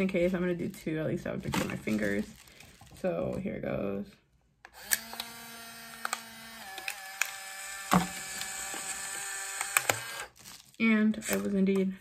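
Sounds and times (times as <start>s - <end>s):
camera motor whirring: 4.8s - 10.4s.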